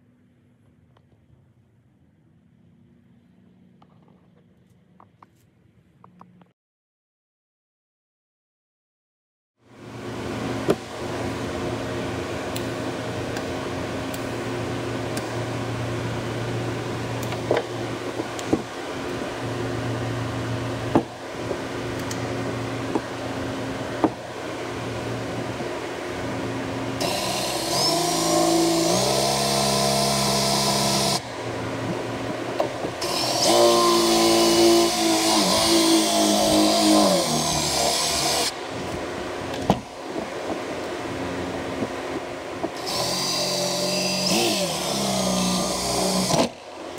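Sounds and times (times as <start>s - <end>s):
steady hum: 9.6s - 46.9s
cordless drill drilling into metal: 27.0s - 31.3s, 33.0s - 38.6s, 42.8s - 46.6s.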